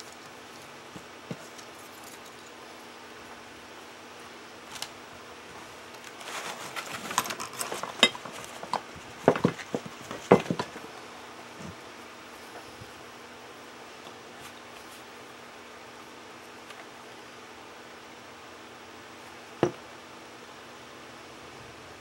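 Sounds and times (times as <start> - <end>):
items rustling and clicking: 4.7 - 10.9.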